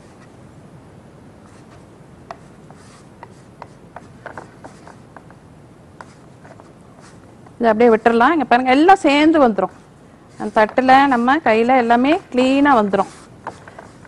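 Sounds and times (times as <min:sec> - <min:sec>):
hands kneading dough: 0:09.4 - 0:14.0.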